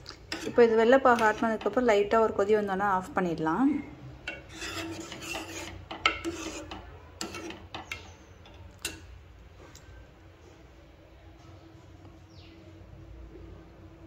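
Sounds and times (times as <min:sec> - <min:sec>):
metal spoon clinking in a pot: 0:00.1 - 0:01.8, 0:04.2 - 0:09.2.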